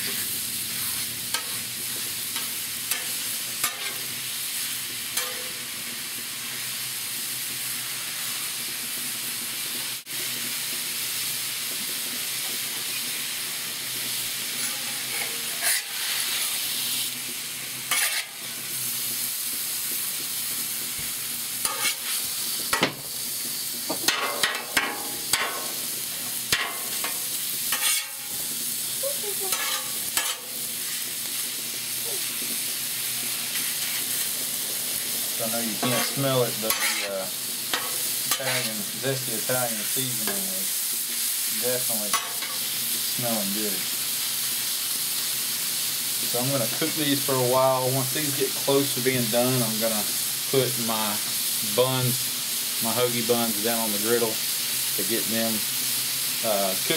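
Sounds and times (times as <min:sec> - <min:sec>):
chicken sizzling on a griddle: 0:00.0 - 0:56.9
metal spatula scraping steel: 0:02.4 - 0:04.1, 0:14.6 - 0:16.5, 0:17.9 - 0:18.4, 0:21.6 - 0:22.2, 0:26.5 - 0:28.3, 0:29.5 - 0:30.6, 0:35.7 - 0:38.8.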